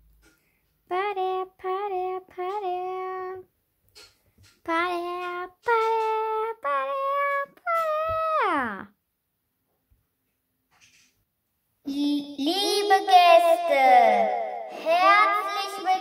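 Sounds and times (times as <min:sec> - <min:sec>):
child singing wordless tune: 0:00.9 - 0:03.5, 0:04.6 - 0:08.6, 0:11.8 - 0:16.0.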